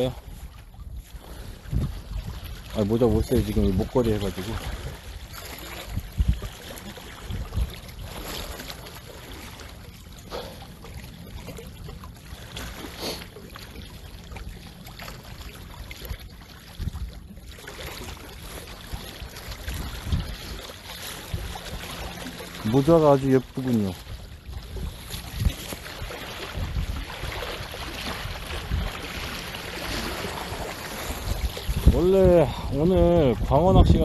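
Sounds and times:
wind rumble on microphone: 0.0 - 9.6, 13.8 - 34.0.

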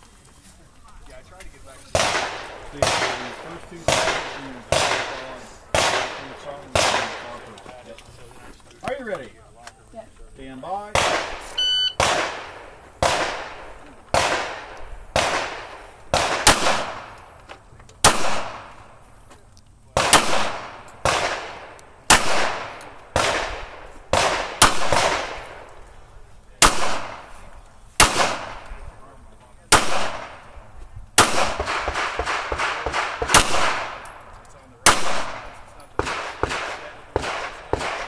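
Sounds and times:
pistol shots echoing: 1.9 - 7.5, 10.9 - 17.4, 18.0 - 19.0, 19.9 - 25.7, 26.6 - 27.4, 28.0 - 28.8, 29.7 - 30.5, 31.2 - 38.0.

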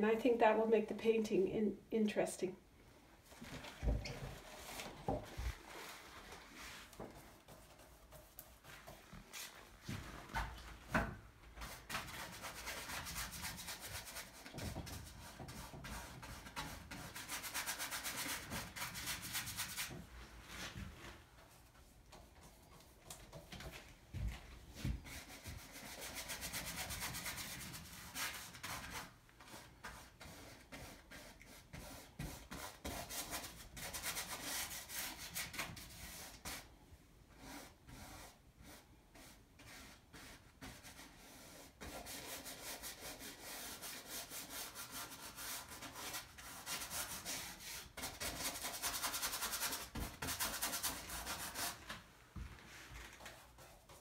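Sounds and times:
paintbrush scrubbing on canvas: 4.4 - 10.2, 24.8 - 36.7, 37.3 - 51.9.

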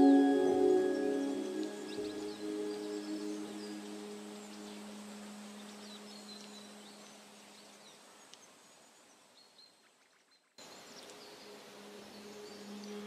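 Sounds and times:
singing bowl tone: 0.0 - 6.4
outdoor hiss: 10.6 - 13.0.

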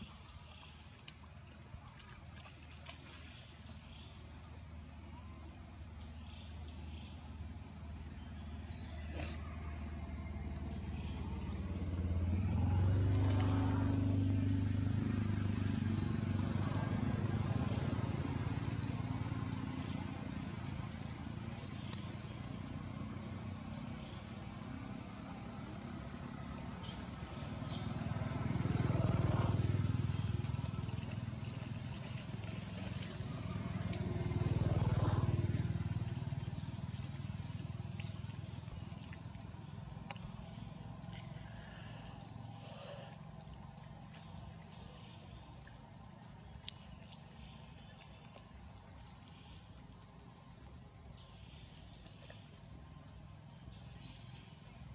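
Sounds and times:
insects droning: 0.0 - 54.9
engine rumble: 5.7 - 54.9
vehicles passing by: 7.2 - 47.8.

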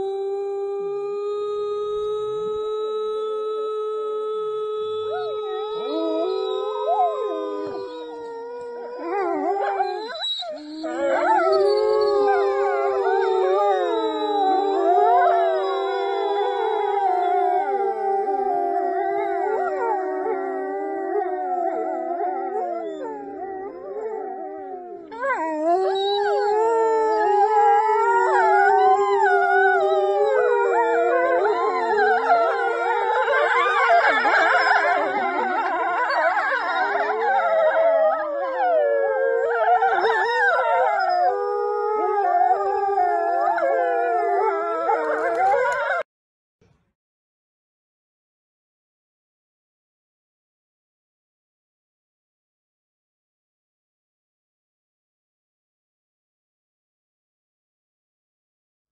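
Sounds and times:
woman howling: 0.0 - 10.2, 10.8 - 46.1
wolves howling: 0.0 - 46.1.

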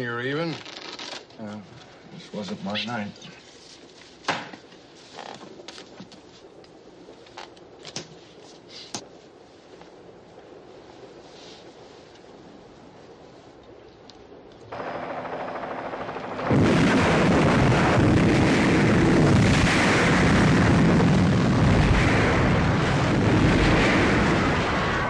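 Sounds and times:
dense continuous rumbling noise: 0.0 - 25.0
loud explosion blast: 16.3 - 25.0.

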